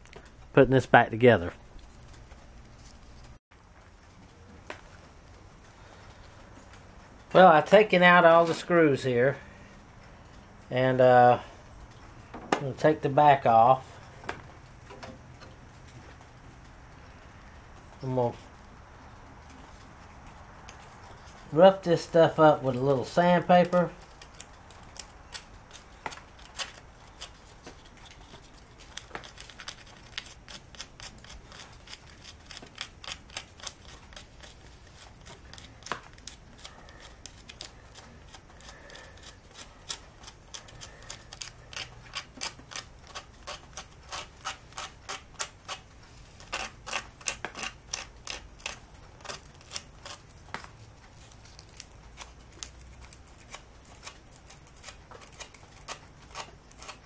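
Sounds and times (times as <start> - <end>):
sandpaper scratching plastic: 23.6 - 50.5, 51.1 - 57.0.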